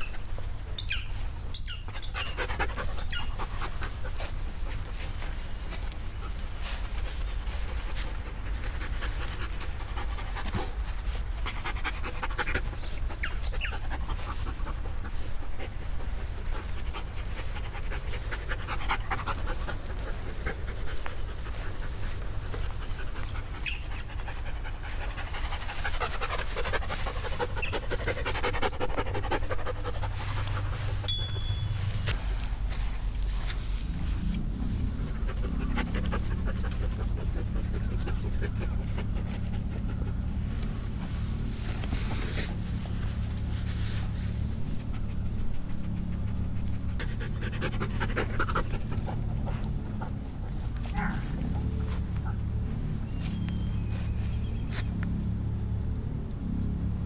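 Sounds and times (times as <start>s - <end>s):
dog panting: 1.8s - 31.1s, 34.6s - 43.5s, 44.4s - 52.5s
steady low rumble: 13.8s - 57.0s.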